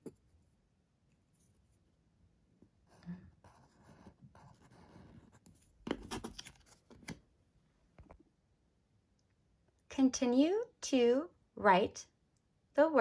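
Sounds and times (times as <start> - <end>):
pencil scratching on paper: 2.8 - 6.3.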